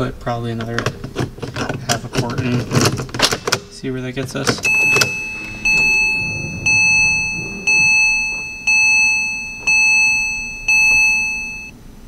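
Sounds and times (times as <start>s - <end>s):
warning chime dinging: 4.6s - 11.7s.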